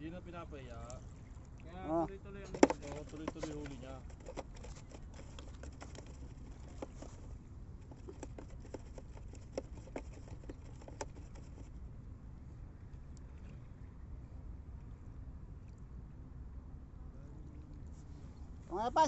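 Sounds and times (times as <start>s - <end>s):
wind: 0.0s - 19.0s
light clicks and taps: 2.4s - 11.7s.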